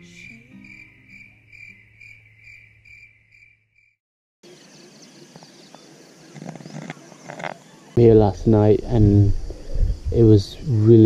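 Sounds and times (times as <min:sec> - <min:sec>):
insects chirping: 0:00.0 - 0:11.0
outdoor background noise: 0:04.4 - 0:11.0.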